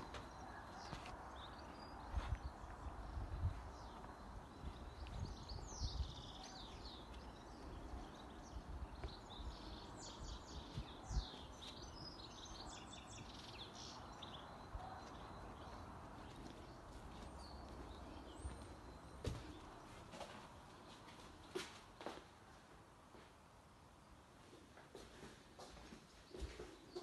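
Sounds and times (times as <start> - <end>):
small birds chirping and singing: 0.0 - 20.1.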